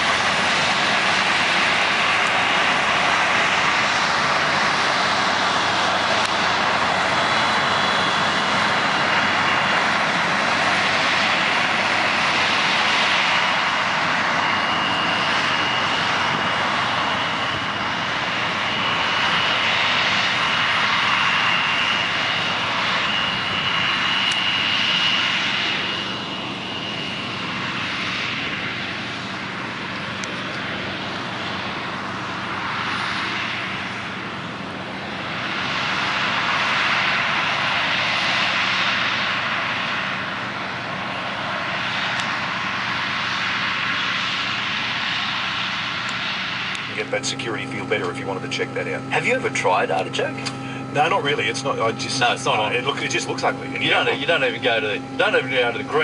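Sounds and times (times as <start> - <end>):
combine harvester drone: 0.0 - 56.0
thin high whine: 46.8 - 56.0.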